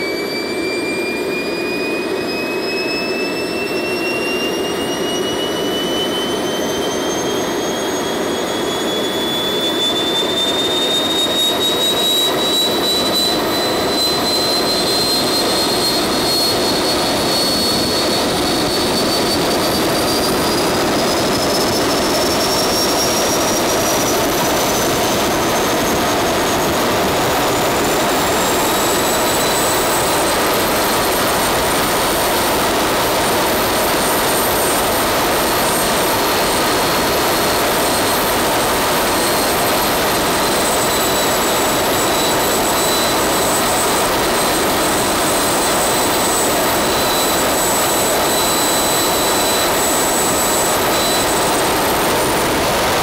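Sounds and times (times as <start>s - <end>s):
jet turbine whine: 0.0s - 53.0s
rushing engine noise: 10.9s - 53.0s.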